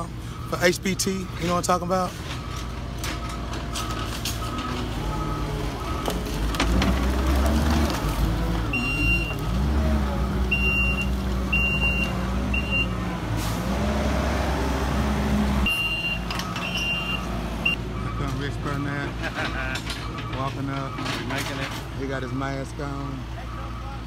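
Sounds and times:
diesel engine revving: 2.8 - 19.4
backup alarm beeping: 8.7 - 9.4, 10.4 - 13.0, 15.7 - 19.0.

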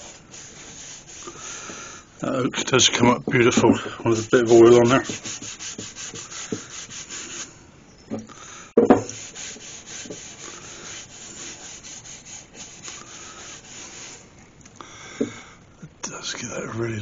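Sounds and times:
rag rubbing wood: 0.0 - 7.6, 8.8 - 14.3
knock: 8.8 - 9.1.

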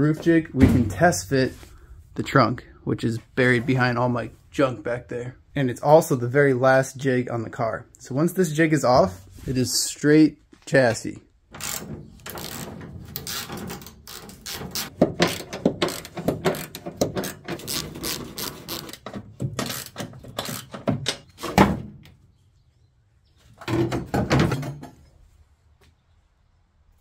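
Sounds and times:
heavy thunk: 0.5 - 1.1.

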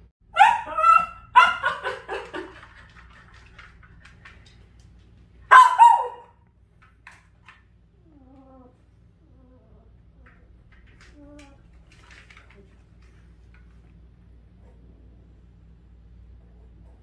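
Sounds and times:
dog yelping barks: 0.3 - 2.0, 5.5 - 6.4.

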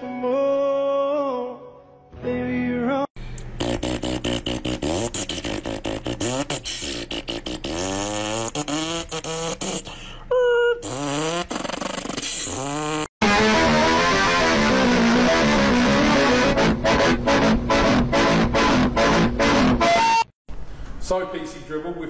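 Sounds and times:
person making engine noises: 3.2 - 13.1
guitar music: 13.2 - 20.2.

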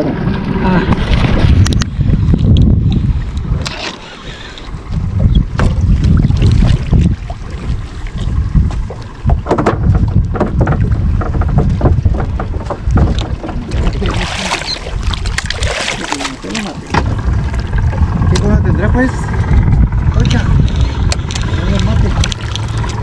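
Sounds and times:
wind buffeting microphone: 0.0 - 23.0
scattered knocks: 9.2 - 13.6
fish splashing at surface: 13.6 - 17.0.

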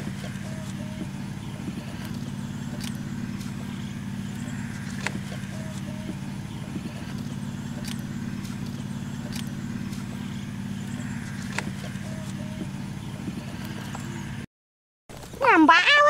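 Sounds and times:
low engine hum: 0.0 - 14.5.

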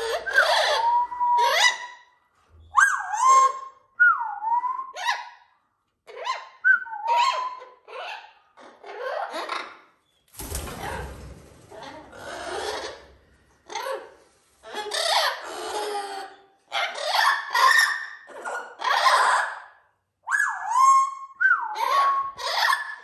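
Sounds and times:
parrots squawking and whistling: 0.0 - 2.0, 6.1 - 9.8, 11.8 - 19.6, 20.2 - 23.0.

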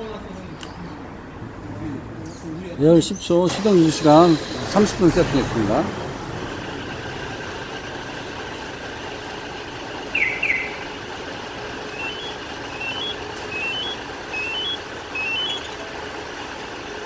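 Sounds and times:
steady hum: 4.5 - 16.5.

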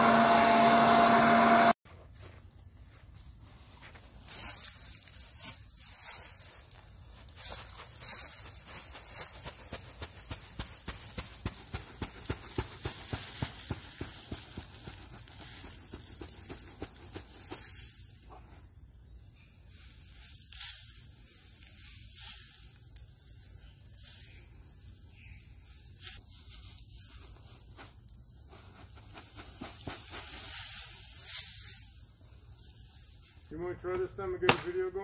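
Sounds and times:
leaves pouring and rustling: 3.3 - 33.5
soft hiss: 17.5 - 33.8.

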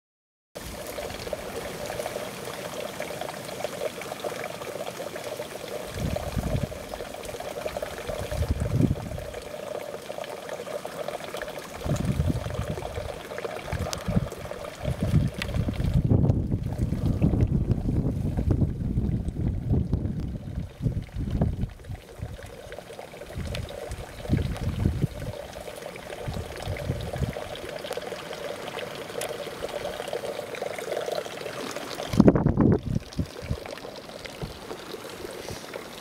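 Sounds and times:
water trickling into a trough: 0.6 - 36.0
wind gusts on microphone: 5.9 - 6.9, 8.1 - 9.3, 11.8 - 22.4, 23.3 - 25.4, 26.2 - 27.5, 32.1 - 33.7.

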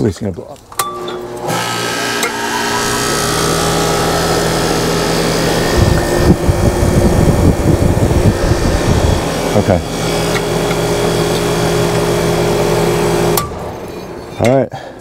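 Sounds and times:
fan motor humming: 0.8 - 14.3
gusty rush of air: 5.6 - 9.5.

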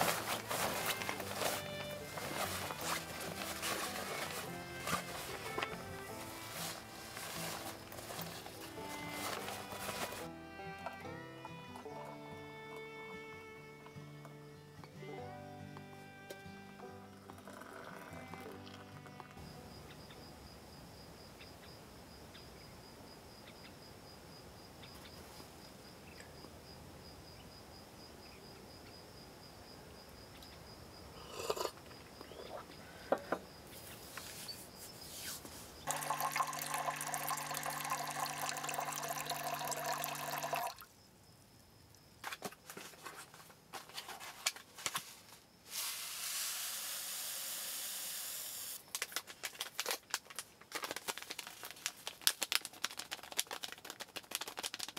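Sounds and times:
grains poured into pot: 35.8 - 40.8
water poured into metal pot: 35.9 - 40.8.

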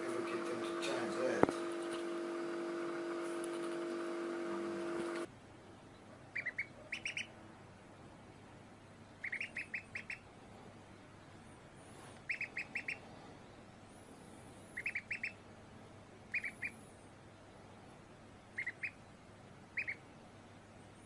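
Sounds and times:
duckling peeping: 1.5 - 2.2, 6.0 - 7.4, 9.2 - 10.3, 12.2 - 13.0, 14.7 - 15.4, 16.3 - 16.8, 18.5 - 19.0, 19.7 - 20.1.

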